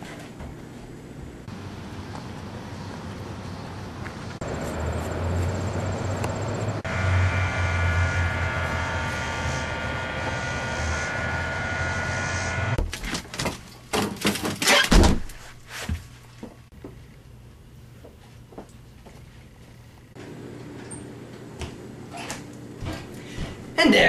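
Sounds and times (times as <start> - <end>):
freezer humming: 4.4 - 13.0, 20.2 - 23.8.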